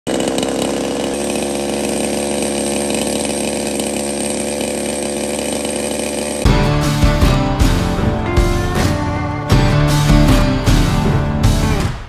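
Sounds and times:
chainsaw running at high revs: 0.1 - 11.8.

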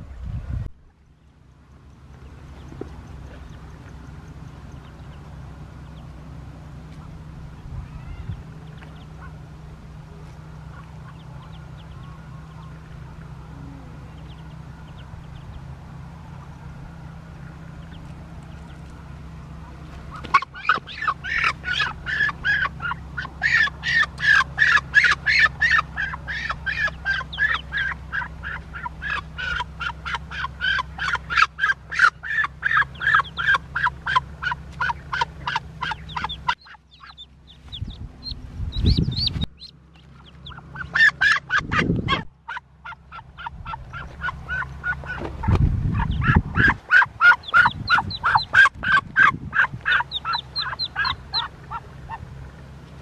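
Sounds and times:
duck quacking in alarm: 20.1 - 37.3, 40.4 - 45.2, 45.9 - 52.3.

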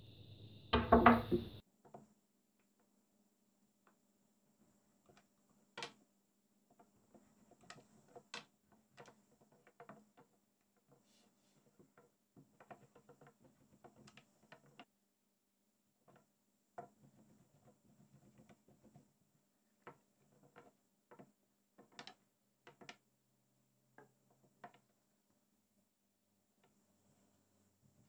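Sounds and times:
rolling pin tapping on wooden board: 0.8 - 1.6.

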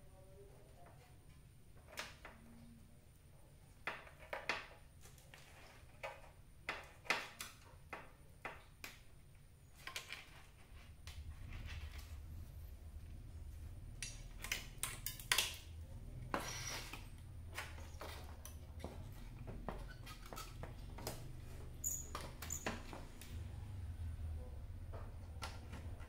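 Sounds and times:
faint steady hum: 9.1 - 26.0
plastic parts clicking and tapping: 14.0 - 23.3.

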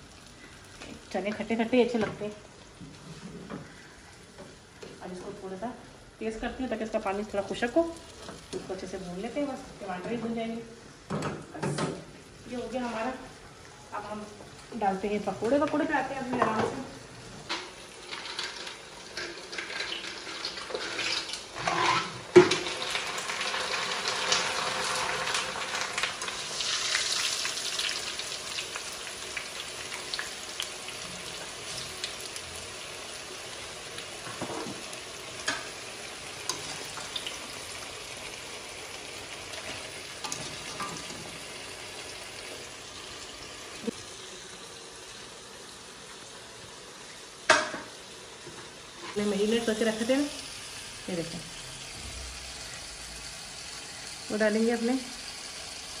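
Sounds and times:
hot oil sizzling: 0.0 - 56.0.

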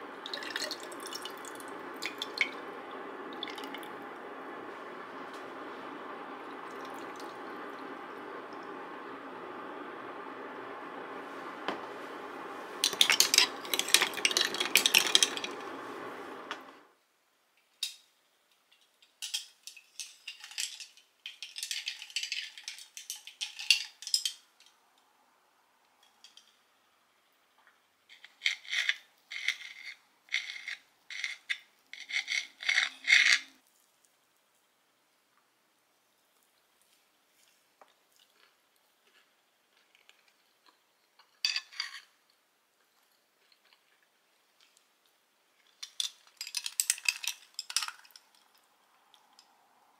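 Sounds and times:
steady hum: 0.0 - 17.0
spoon stirring ice in a glass: 12.8 - 15.5, 45.8 - 48.5.

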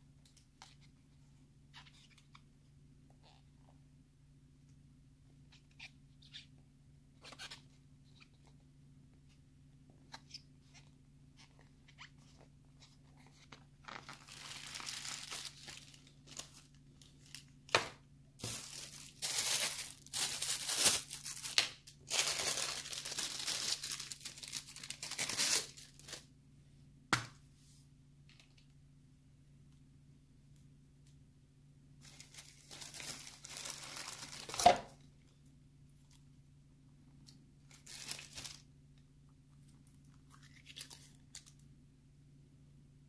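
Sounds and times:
plastic packaging crinkling: 13.3 - 17.6, 18.4 - 26.2, 32.0 - 34.9, 37.7 - 38.6.

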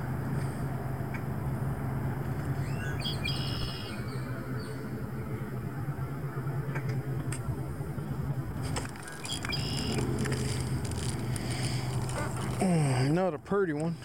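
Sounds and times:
low outdoor rumble: 0.0 - 14.0
bird call: 2.6 - 4.8, 9.0 - 10.0.

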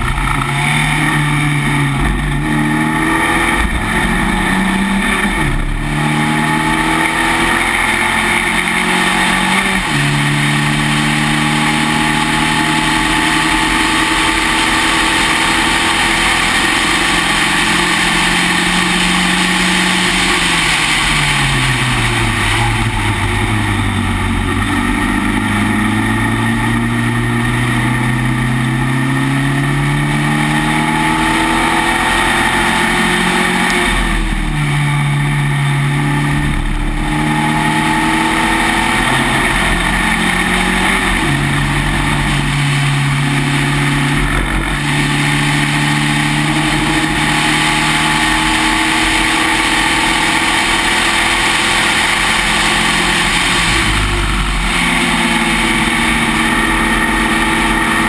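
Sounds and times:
racing car engine revving: 0.0 - 58.0
wind and road noise: 0.0 - 58.0.

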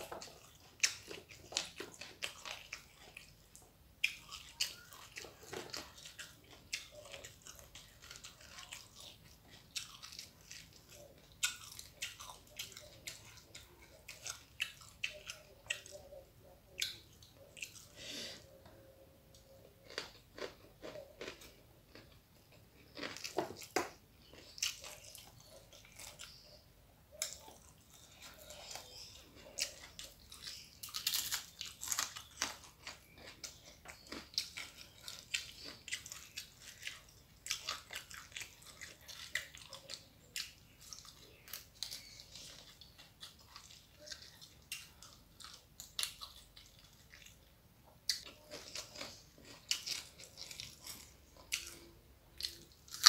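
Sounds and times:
crisp bites and chewing: 19.8 - 22.2, 22.8 - 26.6, 27.2 - 47.5, 48.1 - 53.0.

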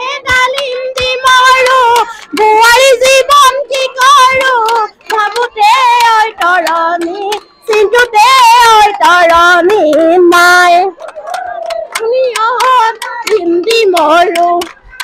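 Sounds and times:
high-pitched voice singing: 0.0 - 15.0
singer breathing: 2.0 - 2.4.

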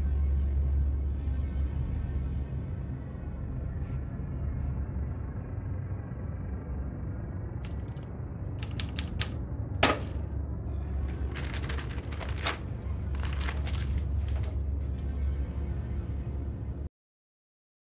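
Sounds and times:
typewriter clacking: 7.7 - 8.0, 8.6 - 10.2, 11.1 - 14.6.

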